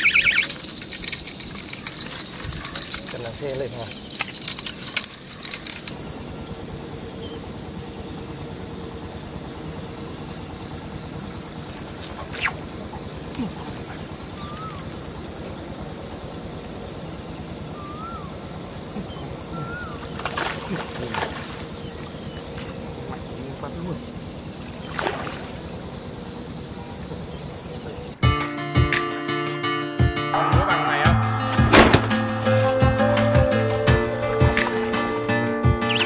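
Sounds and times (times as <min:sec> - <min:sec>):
rising-and-falling chirps: 0:00.0 - 0:02.8, 0:35.7 - 0:36.0
steady high-pitched whine: 0:00.0 - 0:28.2.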